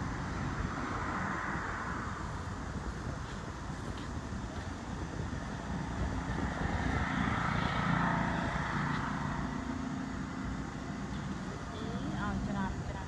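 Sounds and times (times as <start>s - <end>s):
passing vehicle engine hum: 0.0s - 13.0s.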